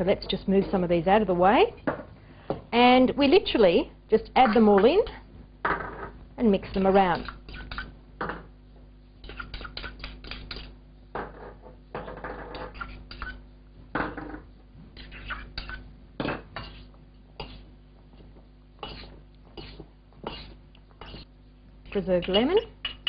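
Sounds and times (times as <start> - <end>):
fork scraping metal bowl: 16.4 - 17.7, 18.8 - 21.3.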